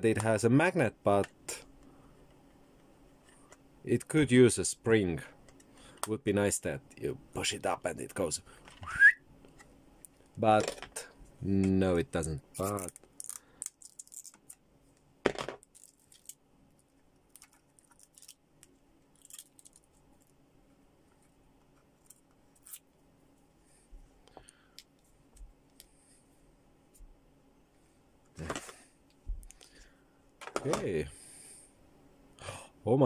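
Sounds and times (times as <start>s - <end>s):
plastic film peeling: 12.6s - 14.6s, 15.6s - 16.4s, 17.2s - 20.0s.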